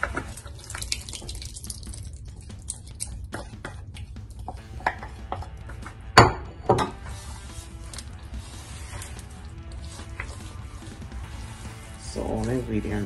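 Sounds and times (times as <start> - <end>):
liquid pouring: 0.0 - 4.6
bowl knocking: 6.2 - 7.0
spoon scraping in a bowl: 6.8 - 12.5.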